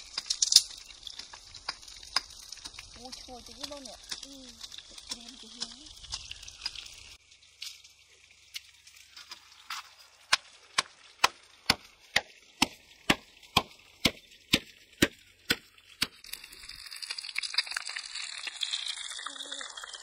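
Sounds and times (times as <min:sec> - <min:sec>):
fish sizzling in a pan: 0:00.0 - 0:20.0
pestle pounding in stone mortar: 0:10.3 - 0:16.2.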